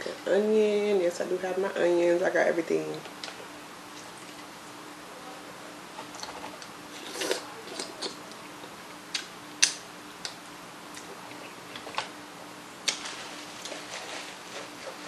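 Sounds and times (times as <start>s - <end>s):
lip smacks and clicks: 9.1s - 12.1s, 12.8s - 13.0s.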